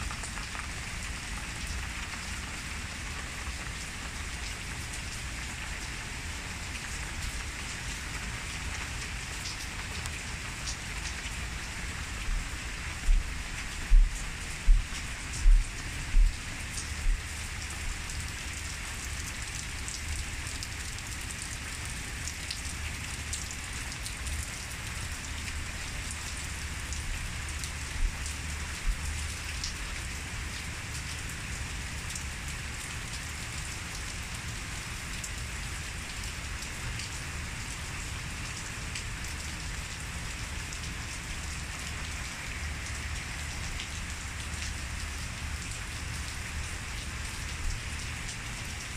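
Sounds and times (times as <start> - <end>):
steady rain falling: 0.0 - 48.9
short low thumps: 13.9 - 16.3.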